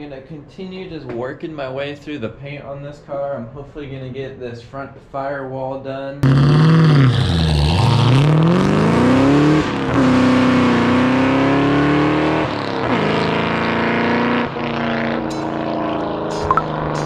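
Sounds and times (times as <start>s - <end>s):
car engine accelerating: 6.2s - 17.0s.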